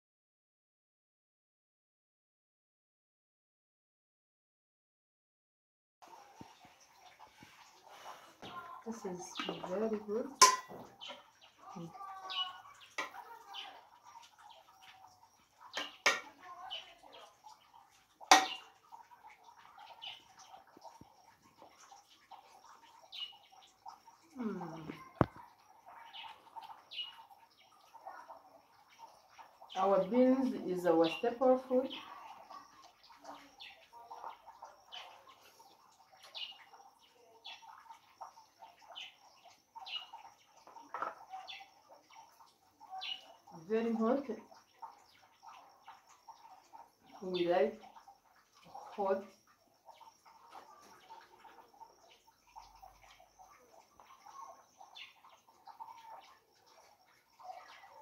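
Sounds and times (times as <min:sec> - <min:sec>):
birds chirping: 0:06.1 - 0:58.0
metal spoon knocking pot: 0:10.3 - 0:11.2, 0:15.8 - 0:16.3, 0:18.3 - 0:18.6.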